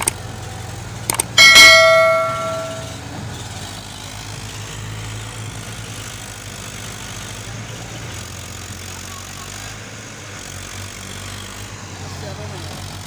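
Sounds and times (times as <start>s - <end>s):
tractor engine running: 0.0s - 13.0s
bell chime: 1.4s - 3.0s.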